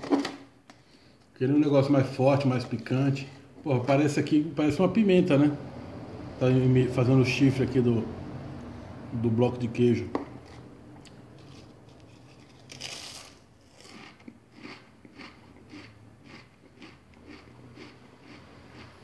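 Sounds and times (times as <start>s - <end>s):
person chewing crunchy crisps: 10.4s - 19.0s.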